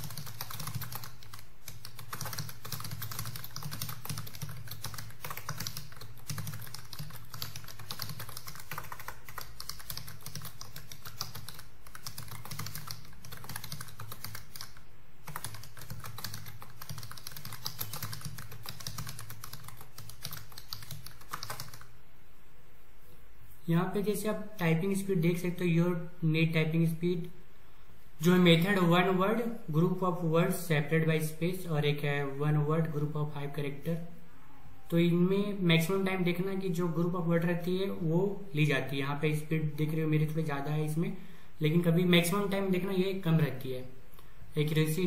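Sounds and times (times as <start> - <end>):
fast keyboard typing: 0.0 - 21.9
low steady hum: 0.0 - 45.0.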